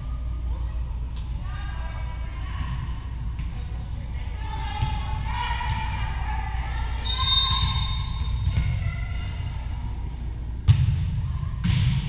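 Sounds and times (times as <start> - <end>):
referee's whistle: 7.0 - 8.5
volleyball struck by hand: 10.6 - 12.0.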